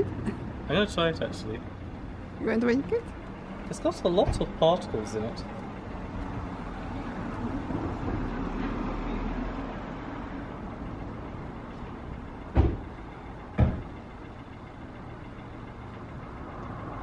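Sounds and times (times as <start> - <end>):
street traffic rumbling: 0.0 - 17.0
sharp thumps: 12.5 - 14.0.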